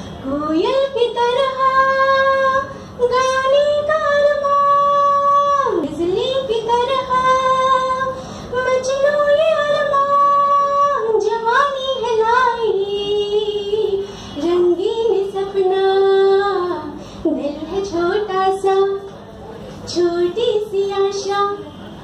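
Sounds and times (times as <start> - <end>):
woman singing unaccompanied: 0.2 - 19.1, 19.9 - 21.7.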